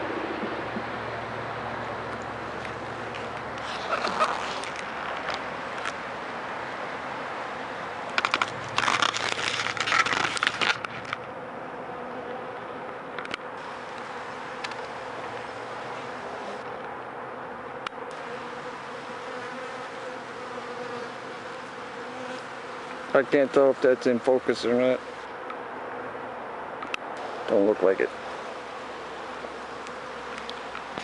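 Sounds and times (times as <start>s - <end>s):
honeybees buzzing: 0.0s - 31.0s
crackling and rustling: 2.1s - 6.0s, 8.1s - 11.4s, 28.5s - 31.0s.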